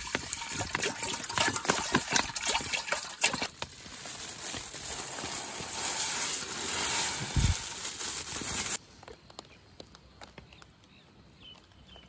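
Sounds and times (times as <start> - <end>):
rice pouring into pot: 0.0 - 8.8.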